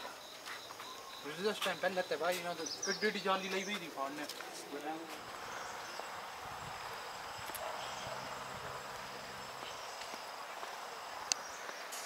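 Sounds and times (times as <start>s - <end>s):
soft footsteps: 0.0s - 5.9s, 6.8s - 12.0s
insects trilling: 0.0s - 12.0s.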